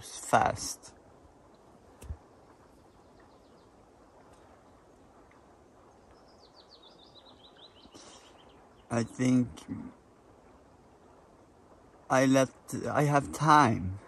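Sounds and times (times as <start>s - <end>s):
faint songbird trill: 1.5s - 11.3s.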